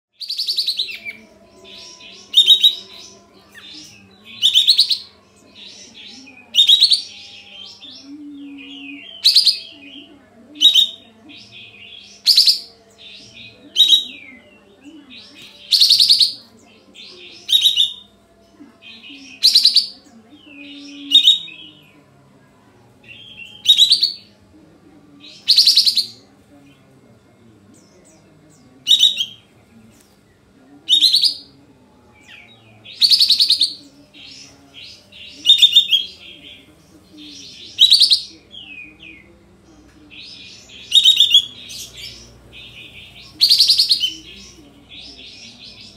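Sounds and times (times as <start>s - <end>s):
bird chattering: 0.2s - 7.1s, 15.2s - 16.4s, 17.2s - 18.1s, 19.1s - 20.0s, 20.6s - 21.7s, 23.1s - 24.3s, 25.3s - 26.2s, 28.8s - 29.5s, 30.9s - 31.5s, 32.3s - 39.3s, 40.1s - 45.9s.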